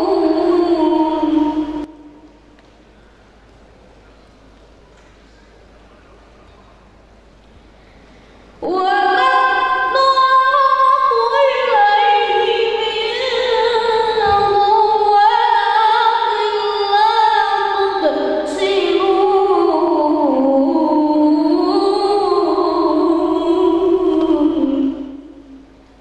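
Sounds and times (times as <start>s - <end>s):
boy singing into microphone: 0.0s - 2.3s, 8.6s - 25.3s.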